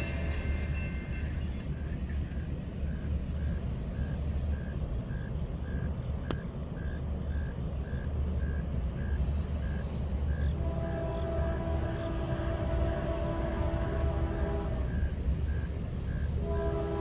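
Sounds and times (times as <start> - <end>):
crossing bell ringing: 0.0 - 1.7.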